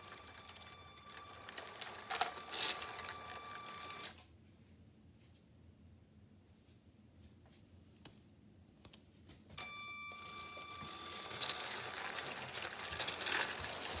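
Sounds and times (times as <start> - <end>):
electric motor whine: 10.2 - 14.0
toy train gears rattling: 11.2 - 14.0.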